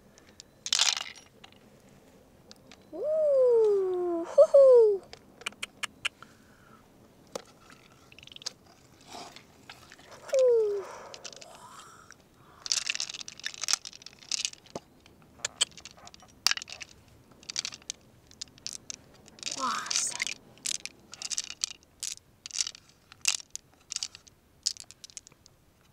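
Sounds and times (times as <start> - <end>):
short falling cry: 10.3 - 12.1
sharp clicks and crunching scrapes: 12.1 - 25.4.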